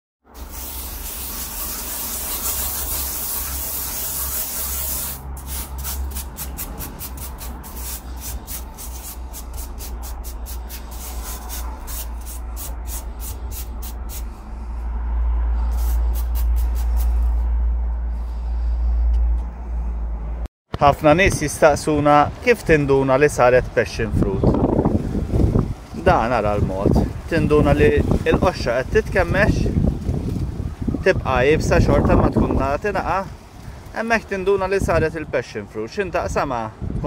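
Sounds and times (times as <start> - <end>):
hand brushing sand across paper: 0.3 - 14.4, 15.6 - 17.4
steady low rumble: 3.1 - 20.5.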